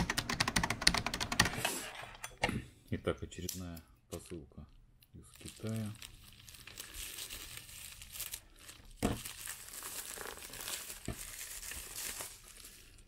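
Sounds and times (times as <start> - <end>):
plastic envelope crinkling and tearing: 5.2 - 13.0.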